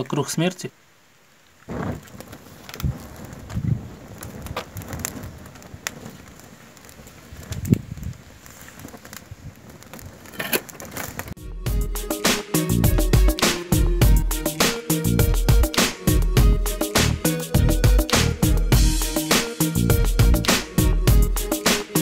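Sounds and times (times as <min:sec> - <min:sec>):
fire crackling: 0:00.0 - 0:22.0
flames whooshing: 0:01.6 - 0:11.4.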